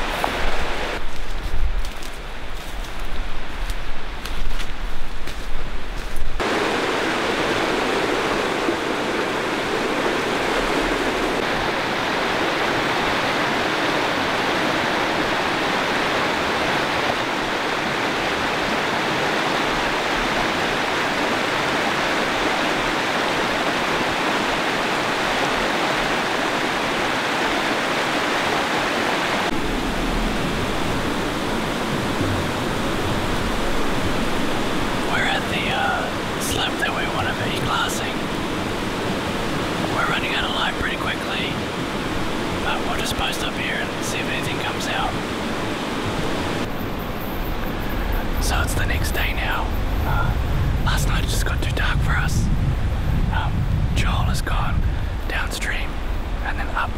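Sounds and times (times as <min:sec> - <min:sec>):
river flowing over rocks: 0:06.4 - 0:46.7.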